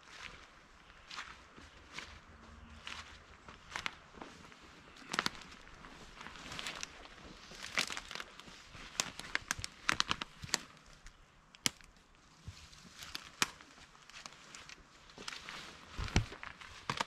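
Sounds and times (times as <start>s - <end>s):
footsteps crunching through brush: 0.0s - 10.8s
twigs snapping: 5.0s - 5.7s, 7.6s - 12.0s, 13.0s - 14.8s, 16.0s - 17.0s.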